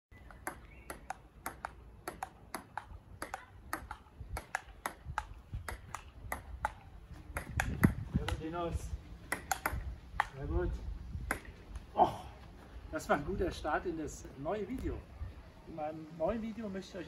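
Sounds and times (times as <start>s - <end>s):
table tennis ball clicking: 0.4s - 6.8s, 9.3s - 10.4s.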